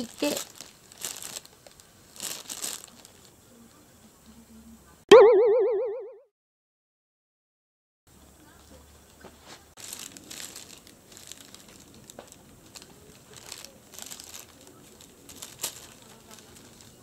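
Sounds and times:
plastic bag crinkling: 0.0 - 3.4, 9.8 - 17.0.

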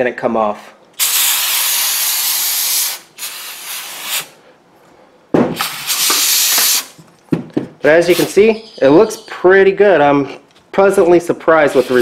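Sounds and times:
aerosol spray hissing: 1.0 - 4.4, 5.6 - 7.0.

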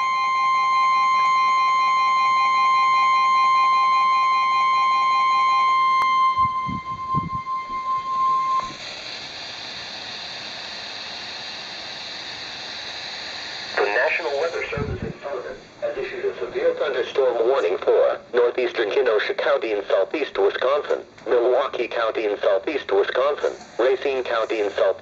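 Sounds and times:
second alarm tone: 0.0 - 8.9
weather radio warning tone: 5.9 - 8.8, 13.8 - 18.8, 22.4 - 25.0
radio hiss: 8.5 - 25.0.

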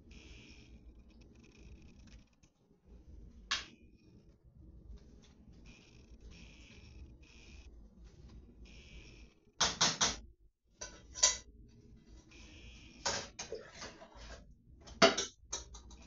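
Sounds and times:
kitchen knocks and clinks: 14.9 - 16.0.

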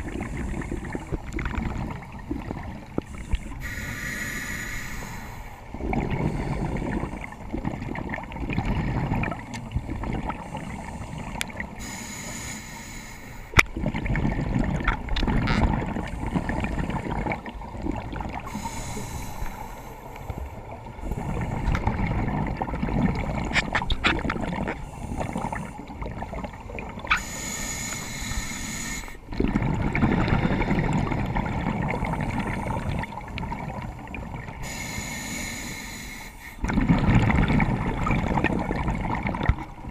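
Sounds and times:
exhaled bubbles underwater: 0.0 - 4.3, 5.0 - 12.0, 13.5 - 35.6, 36.6 - 39.9
regulator inhalation hiss: 3.2 - 5.6, 11.8 - 13.6, 18.5 - 20.3, 27.1 - 29.2, 34.6 - 36.6.

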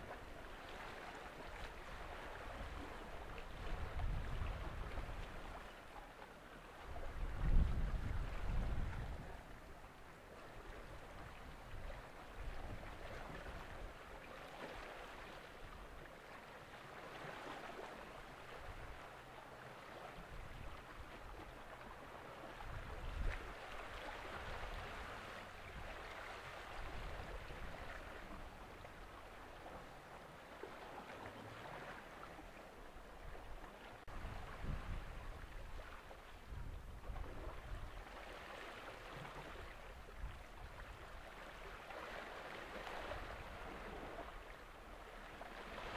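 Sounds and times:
sea water lapping: 0.0 - 45.9
wind gusts on microphone: 1.8 - 5.6, 6.9 - 9.6, 22.5 - 29.2, 33.2 - 38.3.

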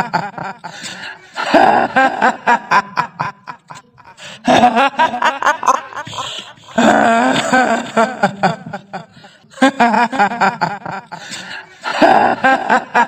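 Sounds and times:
woman cackling laugh: 1.4 - 11.2.

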